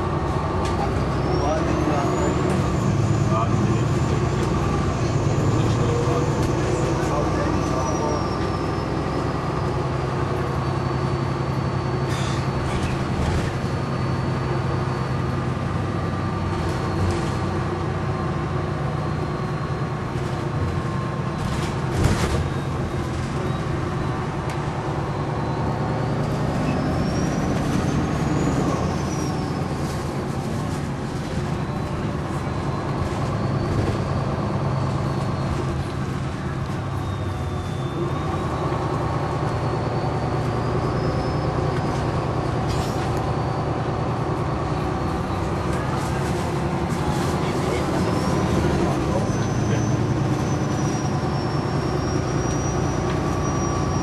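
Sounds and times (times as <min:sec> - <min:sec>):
bus engine and transmission running: 0:00.0 - 0:54.0.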